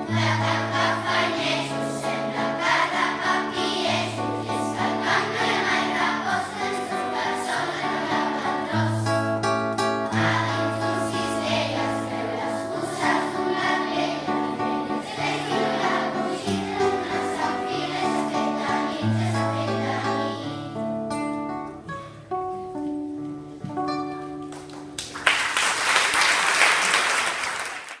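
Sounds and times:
children's choir singing: 0:00.0 - 0:21.0
instrumental accompaniment: 0:00.0 - 0:25.1
audience applause: 0:24.5 - 0:28.0.

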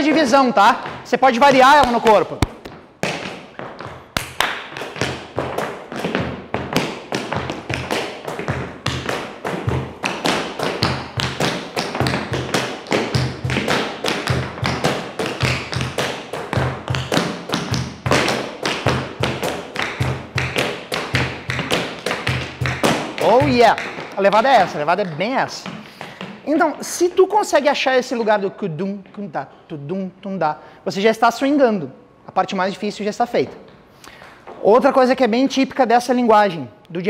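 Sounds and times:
tap shoes on hard floor: 0:00.0 - 0:27.1, 0:33.4 - 0:34.7.

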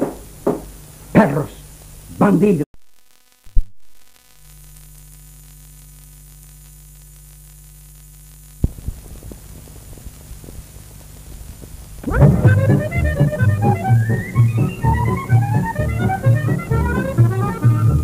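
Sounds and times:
mains hum with hiss: 0:00.0 - 0:18.0
crackling with small ticks: 0:02.9 - 0:12.1.

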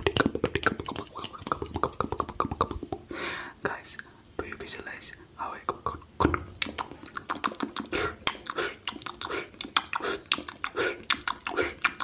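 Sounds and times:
wet mouth clicks and pops: 0:00.0 - 0:03.1, 0:05.7 - 0:12.0.

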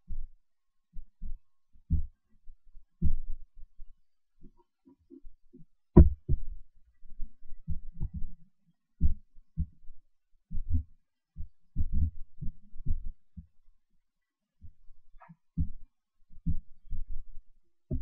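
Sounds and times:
muffled low thumps: 0:01.1 - 0:02.2, 0:06.0 - 0:06.6, 0:07.2 - 0:08.4, 0:09.0 - 0:09.9, 0:10.5 - 0:13.5, 0:15.6 - 0:17.2.

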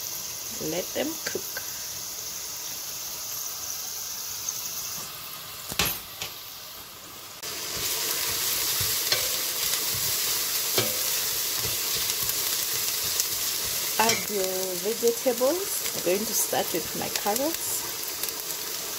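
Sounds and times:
onions sizzling in oil: 0:00.0 - 0:18.9
wooden spoon stirring onions: 0:07.5 - 0:18.7.

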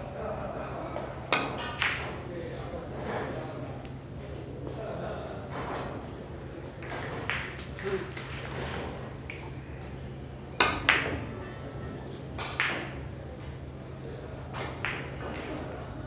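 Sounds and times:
cue striking ball: 0:10.6 - 0:11.5.

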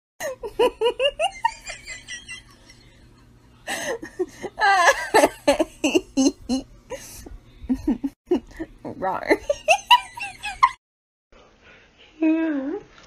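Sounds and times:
person laughing: 0:00.2 - 0:08.8.

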